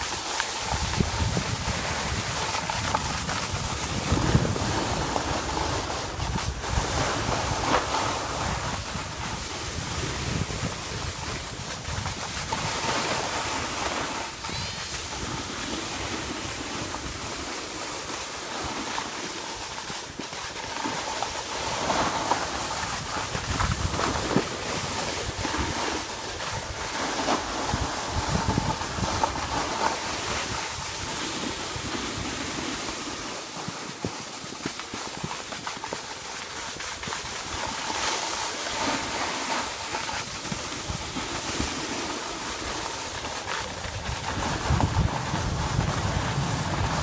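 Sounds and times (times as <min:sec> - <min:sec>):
skis sliding over packed snow: 0:00.0 - 0:47.0
wind buffeting microphone: 0:00.6 - 0:17.6, 0:22.0 - 0:33.2, 0:40.2 - 0:47.0.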